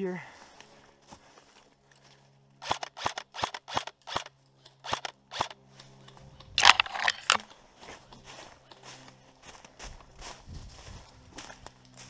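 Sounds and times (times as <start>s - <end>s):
airsoft rifle shots: 2.6s - 5.6s.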